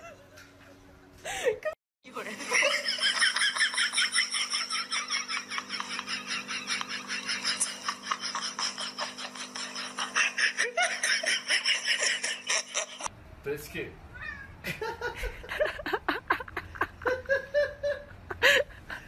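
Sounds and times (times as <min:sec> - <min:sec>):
rapid high-pitched laughter: 0:02.5 - 0:13.1.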